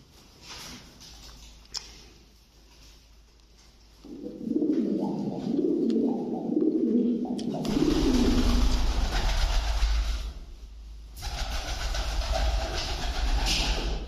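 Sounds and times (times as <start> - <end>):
pigeon cooing: 4.0 - 10.0
loud rushing noise with rumble: 7.7 - 14.0.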